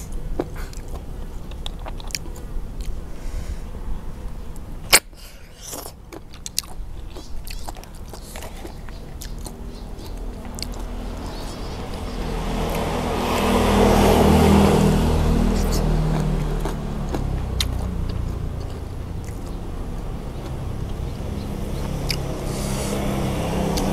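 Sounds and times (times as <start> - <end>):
lips sucking and chewing: 0.4 - 3.0, 4.9 - 13.5, 15.4 - 21.0, 21.9 - 23.0.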